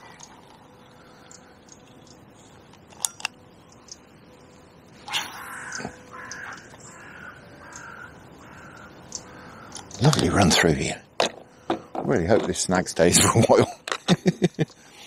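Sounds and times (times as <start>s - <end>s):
crows cawing: 0.8s - 1.8s, 5.1s - 10.0s, 11.4s - 12.0s.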